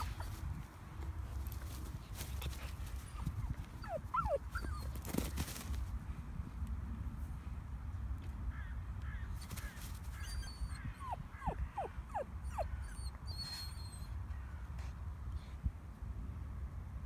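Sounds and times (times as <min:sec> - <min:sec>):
puppy whimpering: 0:00.0 - 0:00.4, 0:03.1 - 0:05.0, 0:10.2 - 0:14.1.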